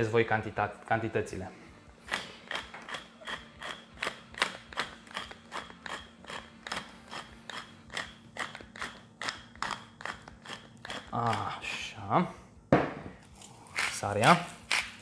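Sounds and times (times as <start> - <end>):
pepper mill grinding clicks: 2.1 - 11.5.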